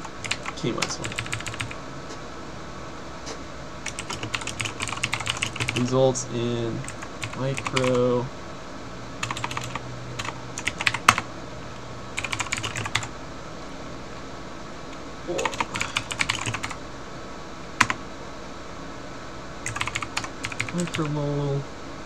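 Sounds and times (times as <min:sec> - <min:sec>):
computer keyboard typing: 0:00.0 - 0:01.8, 0:03.8 - 0:05.9, 0:06.8 - 0:08.1, 0:09.2 - 0:11.3, 0:12.2 - 0:13.1, 0:15.3 - 0:16.8, 0:17.8 - 0:18.0, 0:19.6 - 0:21.2.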